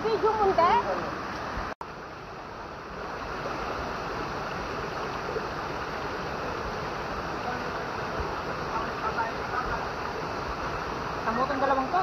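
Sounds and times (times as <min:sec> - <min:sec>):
waterfall pouring into pool: 0:03.2 - 0:12.0.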